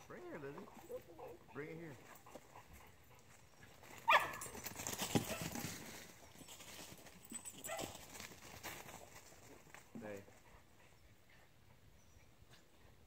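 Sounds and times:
dog barking: 4.1s - 4.5s.

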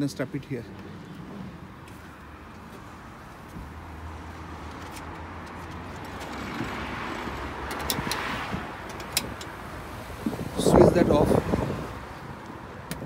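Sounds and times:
metal fittings clicking: 4.8s - 9.6s.

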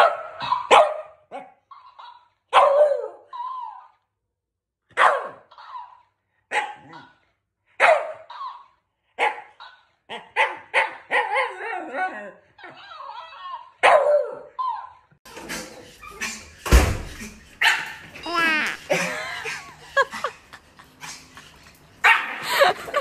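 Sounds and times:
dog barking: 0.0s - 3.3s, 4.9s - 7.2s, 7.8s - 8.6s, 9.2s - 11.6s, 13.8s - 14.5s, 17.6s - 18.0s, 22.0s - 22.4s.

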